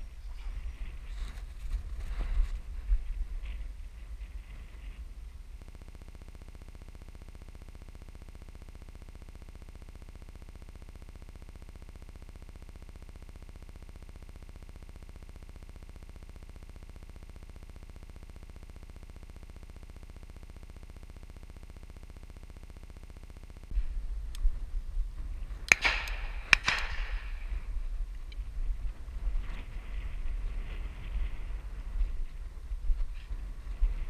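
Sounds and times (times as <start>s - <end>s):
low hum: 0.0s - 34.0s
electronic buzz: 3.4s - 24.5s.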